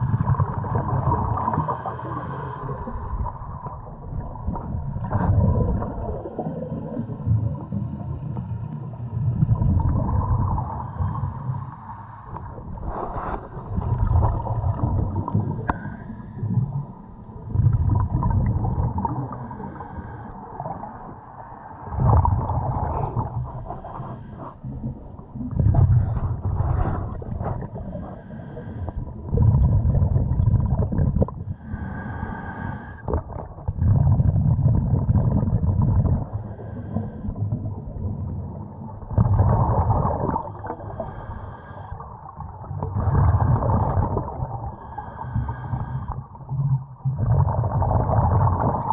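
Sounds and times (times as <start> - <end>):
underwater breathing rush: 1.5 - 3.1, 10.6 - 13.9, 15.0 - 16.5, 19.0 - 20.4, 23.0 - 24.7, 26.0 - 29.1, 31.4 - 33.2, 36.2 - 37.4, 40.4 - 42.0, 44.7 - 46.3
bubbling: 12.4 - 16.8, 17.4 - 19.8, 21.9 - 38.3, 38.9 - 48.9.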